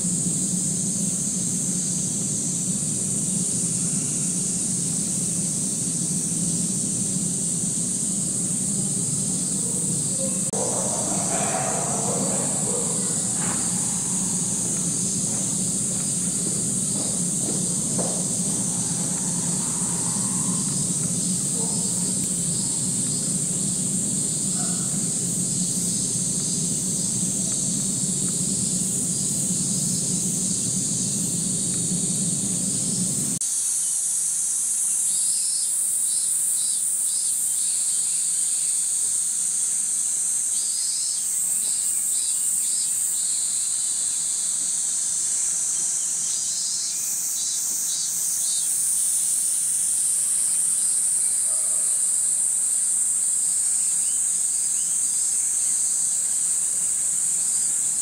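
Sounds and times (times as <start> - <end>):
low rumble: 0.0 - 33.4
cicadas buzzing: 0.0 - 58.0.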